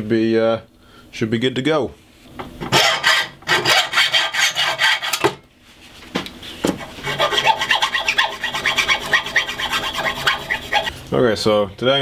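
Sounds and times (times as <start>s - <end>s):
hacksaw cutting metal rod: 2.7s - 5.3s, 6.8s - 10.9s.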